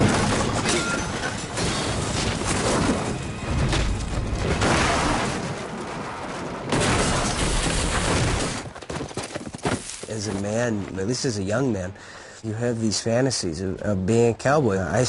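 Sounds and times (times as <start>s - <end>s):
coach crashing and rolling: 0.0s - 11.0s.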